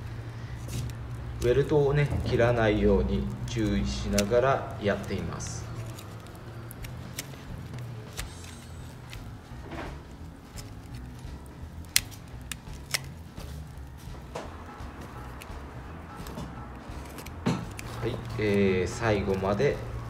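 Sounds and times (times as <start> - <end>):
knife cutting stitching threads: 3.4 - 9.4, 16.2 - 19.7.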